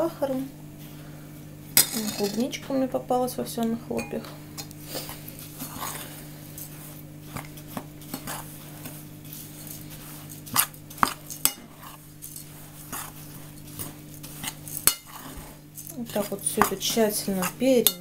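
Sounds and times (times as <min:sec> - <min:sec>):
spoon scraping oats in bowl: 0:04.9 - 0:18.0.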